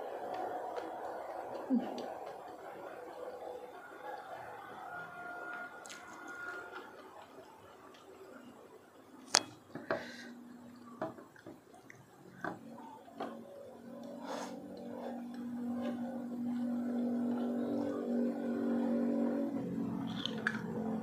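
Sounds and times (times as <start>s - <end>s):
soft chewing: 0.0s - 8.5s
low hum: 12.0s - 21.0s.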